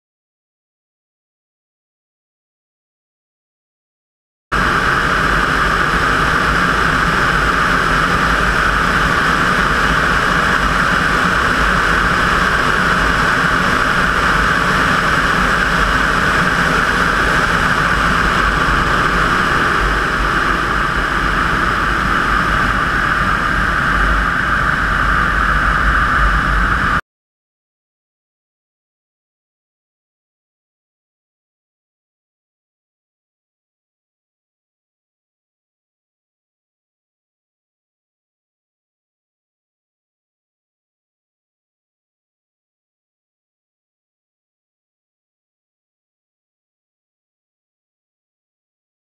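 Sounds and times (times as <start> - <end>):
low buffeting rumble: 4.5 - 27.0
wind noise over camera: 4.6 - 27.0.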